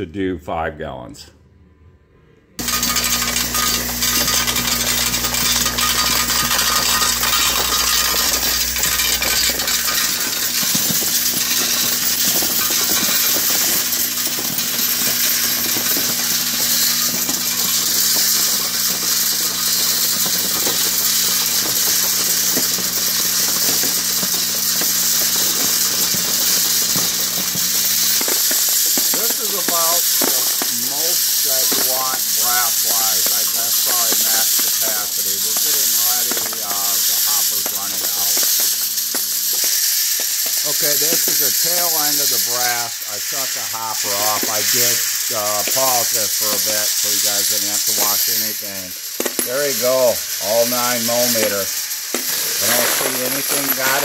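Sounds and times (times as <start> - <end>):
deep hum: 1.5 - 19.8
motor hum: 2.6 - 29.4.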